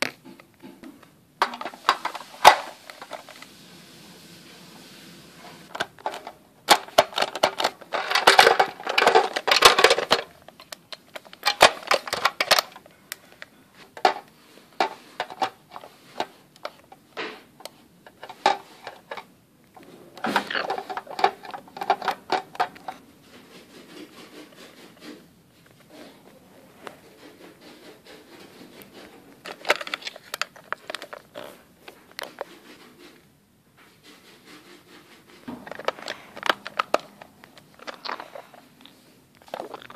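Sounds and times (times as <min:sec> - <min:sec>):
plastic toys clattering: 0:01.4 - 0:03.5, 0:05.7 - 0:24.8, 0:28.9 - 0:32.5, 0:35.5 - 0:39.9.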